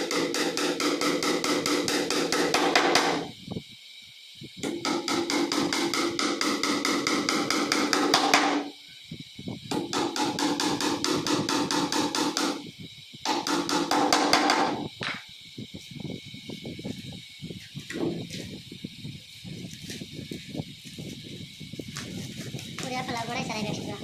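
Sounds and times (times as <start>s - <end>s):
hammer tapping a nail: 0.0s - 3.2s, 4.6s - 8.6s, 9.7s - 12.6s, 13.2s - 15.2s.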